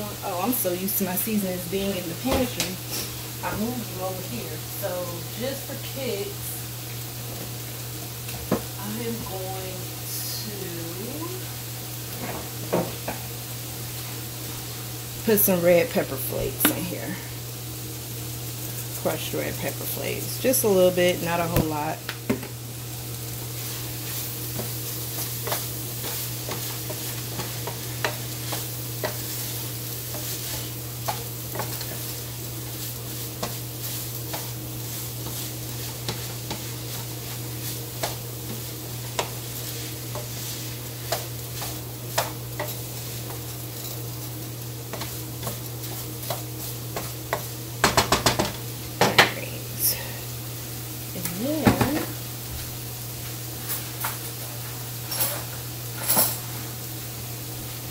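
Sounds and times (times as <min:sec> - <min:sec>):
meat sizzling in a pan: 0:00.0 - 0:57.9
steady low hum: 0:13.2 - 0:54.6
utensil scraping a pan: 0:23.6 - 0:43.9.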